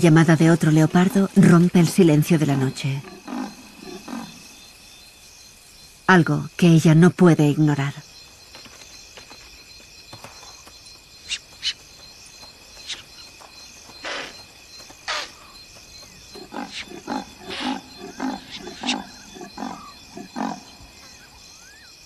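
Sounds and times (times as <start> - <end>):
crickets and insects chirping: 0.0 - 22.0
leopard sawing grunts: 16.3 - 21.0.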